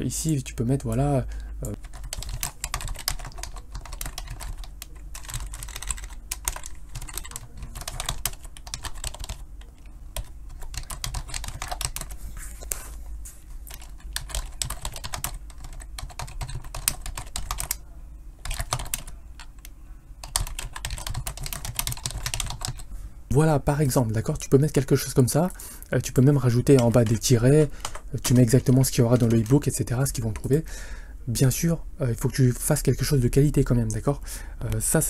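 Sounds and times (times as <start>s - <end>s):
computer keyboard typing: 0.8s - 12.2s, 13.6s - 17.8s, 18.4s - 22.9s, 26.5s - 30.6s.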